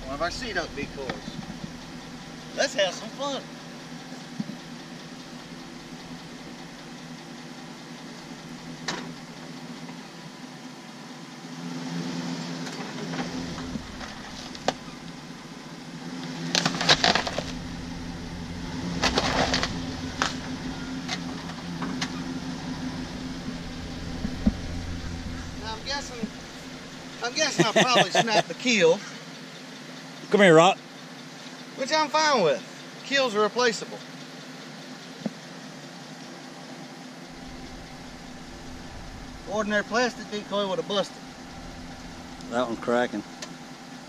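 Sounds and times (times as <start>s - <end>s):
pickup engine idling: 0.0s - 11.6s, 12.7s - 44.0s.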